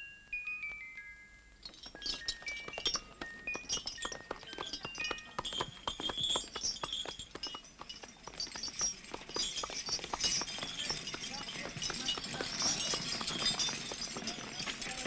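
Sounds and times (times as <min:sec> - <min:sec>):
bright chime-like music notes: 0:00.0 - 0:09.5
clatter of clicks and knocks: 0:01.7 - 0:15.0.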